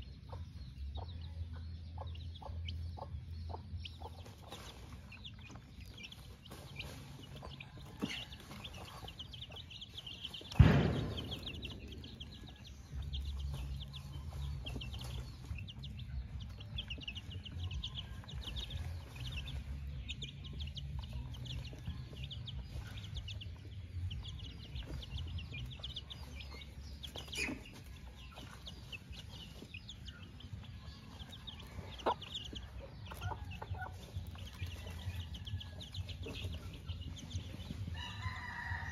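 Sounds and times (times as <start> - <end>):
chicks peeping: 0.0 - 38.9
hen clucking: 0.0 - 38.9
sharp thump: 10.4 - 13.7.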